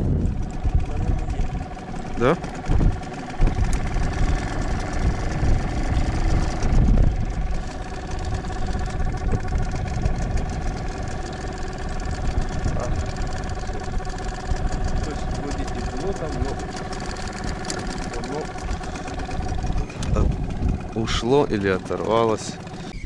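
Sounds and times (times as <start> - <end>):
small outboard motor running: 0.0 - 23.0
wind buffeting microphone: 0.0 - 23.0.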